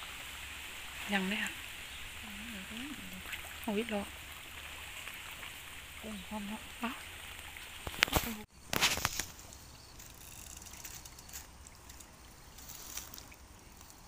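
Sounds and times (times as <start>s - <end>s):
water dripping and sloshing: 0.0s - 14.0s.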